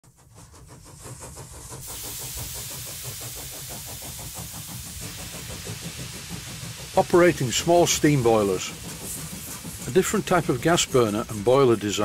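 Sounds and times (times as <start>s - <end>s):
hiss: 0.1s - 12.0s.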